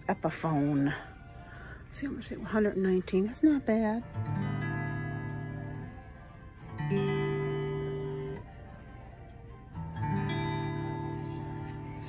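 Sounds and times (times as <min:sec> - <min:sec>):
acoustic guitar strummed: 0:03.8 - 0:08.5, 0:09.7 - 0:12.0.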